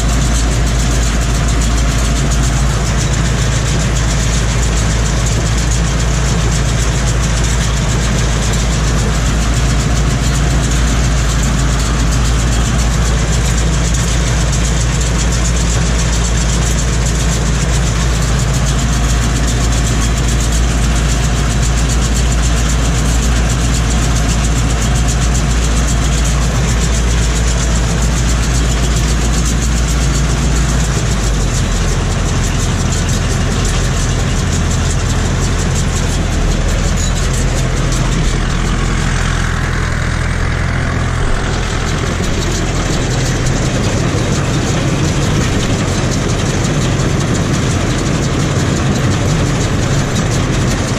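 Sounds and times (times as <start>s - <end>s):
tractor engine running: 0.0s - 50.9s.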